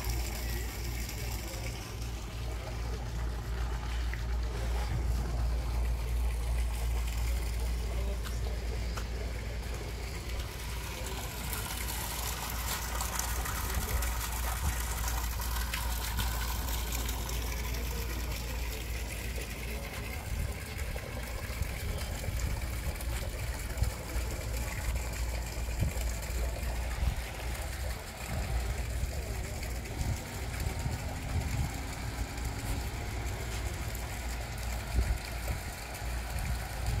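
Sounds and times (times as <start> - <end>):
steady low rumble: 0.0 - 37.0
water pouring and splashing: 0.0 - 37.0.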